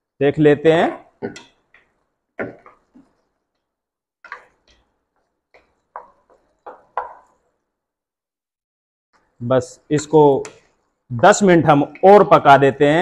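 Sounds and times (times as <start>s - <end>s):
wooden spoon knocking on pan: 5.5s - 7.4s.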